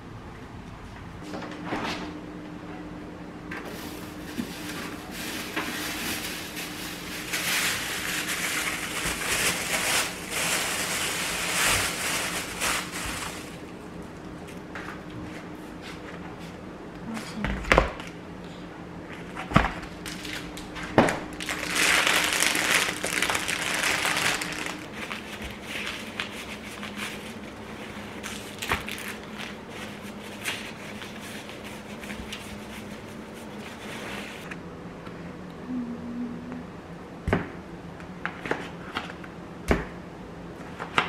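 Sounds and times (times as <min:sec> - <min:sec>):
faint steady hum: 0:00.0 - 0:41.0
crinkling plastic and paper: 0:03.6 - 0:13.8, 0:19.9 - 0:34.5.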